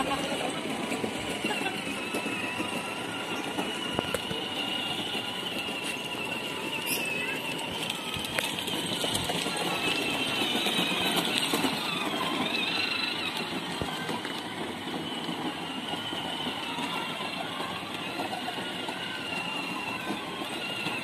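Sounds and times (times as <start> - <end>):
plastic wheels rumbling on paving: 0.0 - 21.0
toy car motor whine: 0.0 - 21.0.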